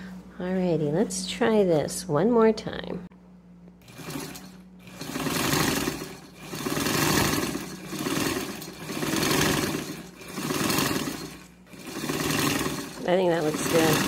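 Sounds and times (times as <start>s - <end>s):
sewing machine stitching: 3.8s - 14.0s.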